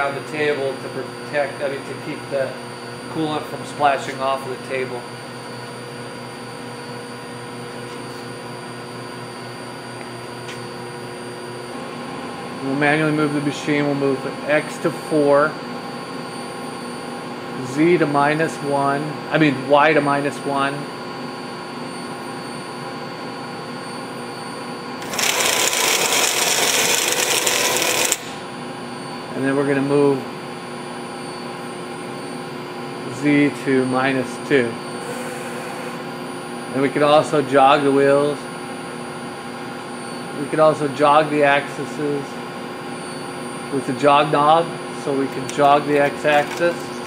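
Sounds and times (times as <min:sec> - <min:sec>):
milling machine humming at idle: 0:00.0 - 0:47.0
stepper motor harsh whir: 0:25.0 - 0:28.5
mill humming: 0:25.0 - 0:28.9, 0:44.1 - 0:47.0.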